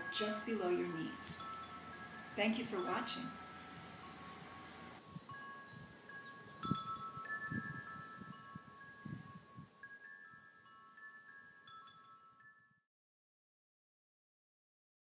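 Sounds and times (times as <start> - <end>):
soft chimes ringing: 0.0 - 12.9.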